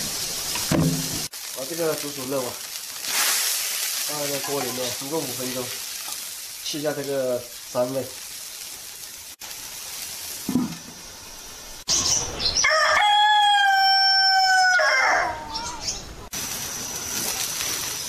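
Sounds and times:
rooster crowing: 0:12.6 - 0:15.9.

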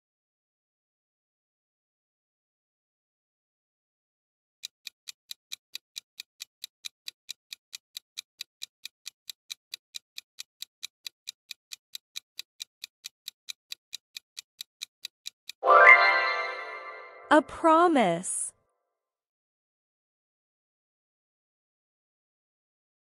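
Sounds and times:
clock ticking: 0:04.6 - 0:15.6.

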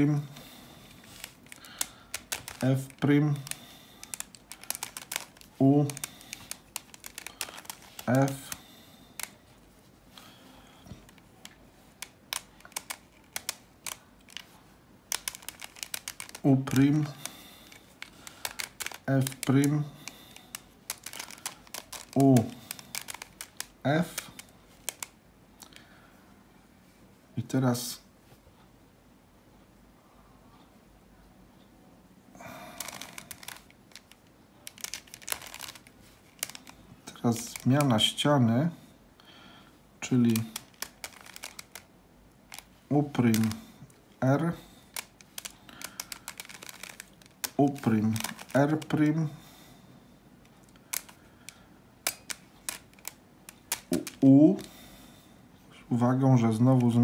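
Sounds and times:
puzzle cube faces clicking: 0:00.9 - 0:08.6, 0:09.2 - 0:09.4, 0:10.9 - 0:25.8, 0:32.7 - 0:38.2, 0:40.0 - 0:41.9, 0:42.5 - 0:43.6, 0:44.2 - 0:49.2, 0:50.6 - 0:54.7.

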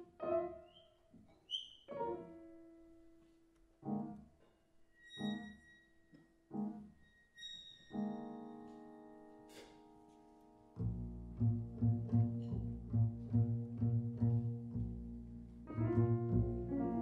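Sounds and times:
jazz piano chords: 0:07.9 - 0:17.0.

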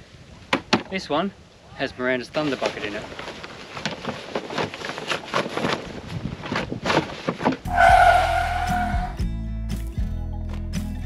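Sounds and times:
loud harsh call: 0:07.7 - 0:09.2
music: 0:08.6 - 0:11.0.

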